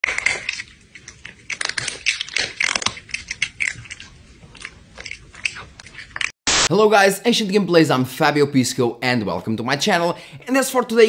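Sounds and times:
hard food crunching: 0:00.0 - 0:06.3.

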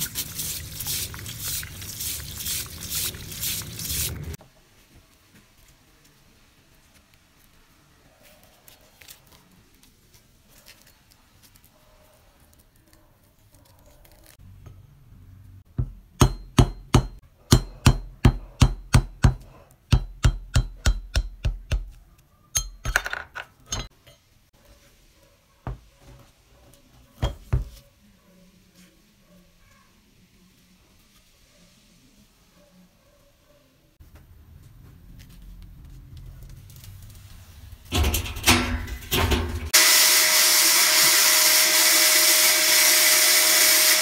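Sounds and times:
hammer knocking on steel punch: 0:15.8 - 0:21.9.

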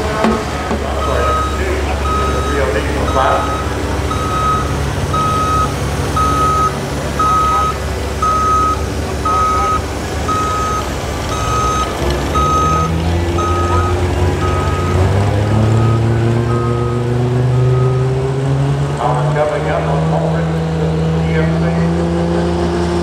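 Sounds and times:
engine running low: 0:00.0 - 0:23.0
reversing alarm beeping: 0:00.1 - 0:18.2.

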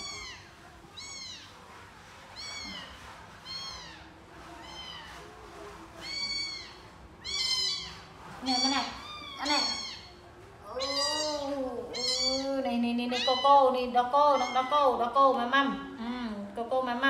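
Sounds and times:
kitten mewing: 0:06.0 - 0:10.1, 0:10.7 - 0:13.6.

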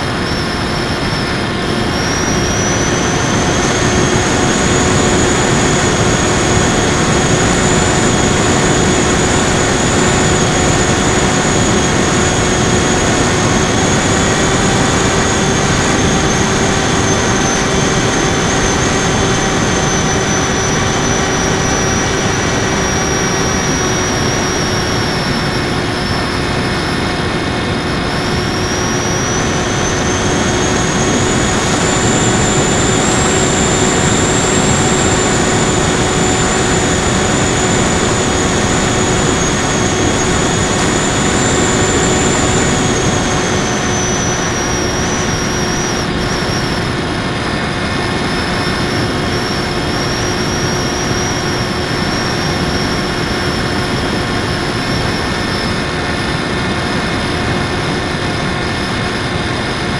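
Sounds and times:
electric motor and propeller whine: 0:00.0 - 0:59.9.

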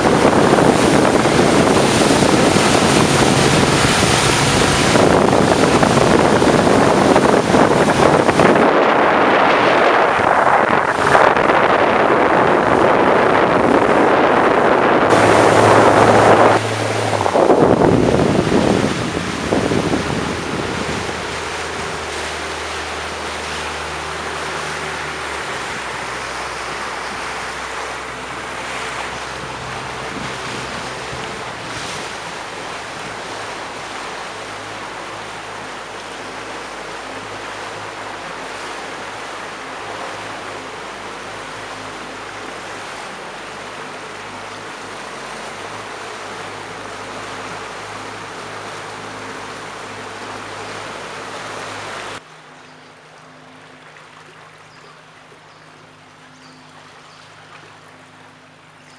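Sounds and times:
wind on microphone: 0:00.0 - 0:52.2
boat engine low hum: 0:00.0 - 0:58.9
rushing water: 0:00.0 - 0:58.9.

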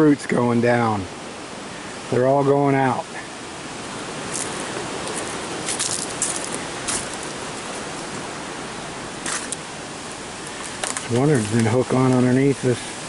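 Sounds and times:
outdoor hiss: 0:00.0 - 0:13.0
light crackles: 0:03.1 - 0:13.0.

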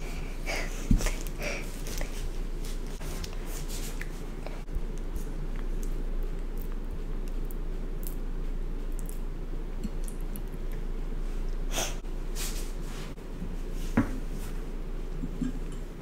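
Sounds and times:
child breathing sharply: 0:00.0 - 0:01.8
low room hum: 0:00.0 - 0:16.0.

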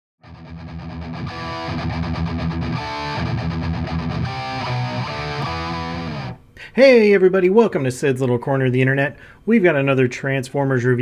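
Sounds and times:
distorted electric guitar chords: 0:00.2 - 0:06.5.

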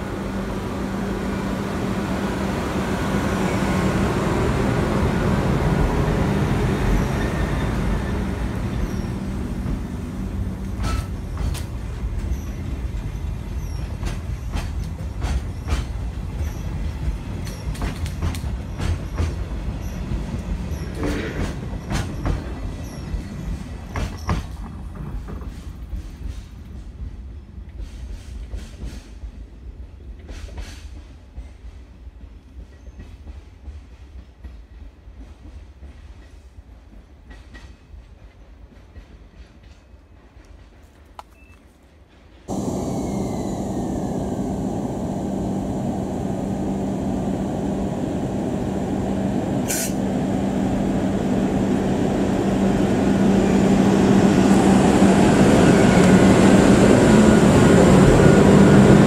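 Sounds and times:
train wheels clicking over rail joints: 0:06.7 - 0:29.3, 0:30.0 - 0:46.6
locomotive rumble and hum: 0:42.5 - 0:59.0.

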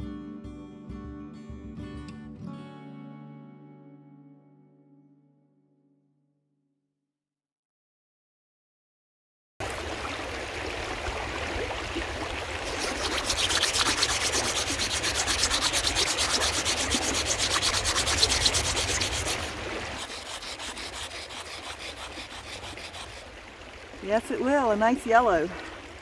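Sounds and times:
rock scraping on sandstone: 0:12.7 - 0:23.2.

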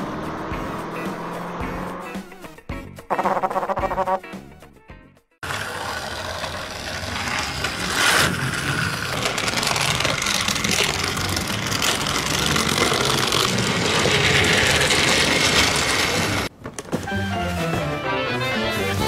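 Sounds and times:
music: 0:00.0 - 0:05.4, 0:16.9 - 0:19.0
toy bus running on track: 0:05.4 - 0:16.5.

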